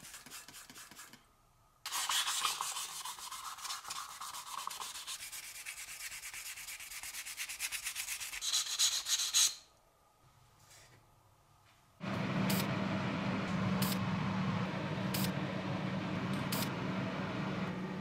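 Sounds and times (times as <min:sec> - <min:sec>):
sandpaper scraping metal: 0:01.9 - 0:09.7.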